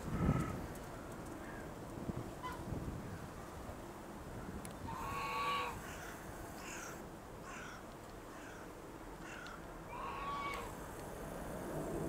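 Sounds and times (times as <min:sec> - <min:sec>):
jet engines rumbling: 0:09.6 - 0:12.0.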